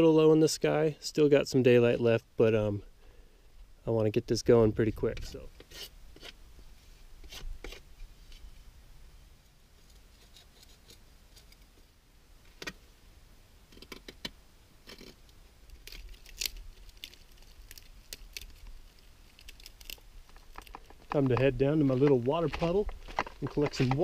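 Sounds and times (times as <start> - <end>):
knife scraping wood: 5.6 - 6.4, 7.2 - 7.9, 9.8 - 11.7, 14.8 - 15.2.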